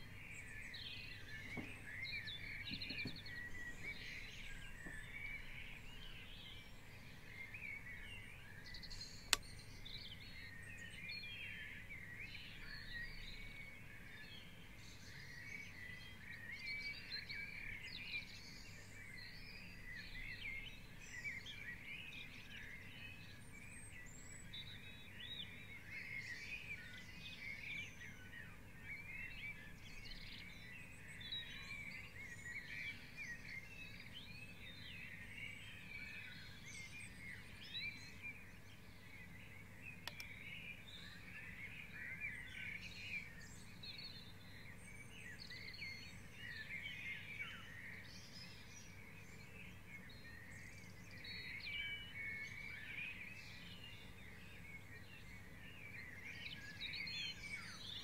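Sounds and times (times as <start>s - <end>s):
songbirds singing: 0.0s - 58.0s
sharp click: 40.0s - 40.3s.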